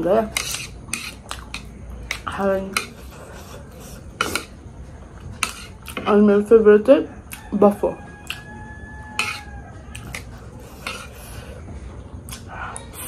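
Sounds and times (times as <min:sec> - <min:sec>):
utensils clicking against dishes: 0:00.1 - 0:03.2.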